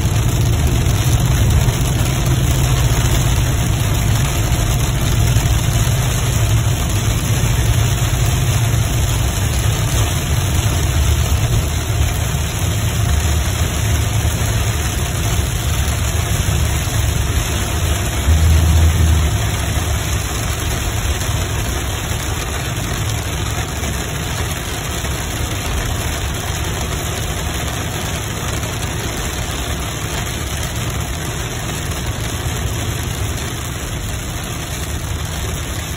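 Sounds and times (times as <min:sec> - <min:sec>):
car engine and tyres rumbling: 0:00.0 - 0:35.9.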